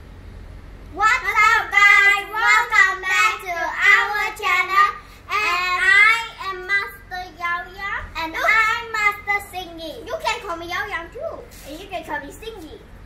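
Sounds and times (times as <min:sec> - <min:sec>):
girl singing: 0:01.0 - 0:09.3.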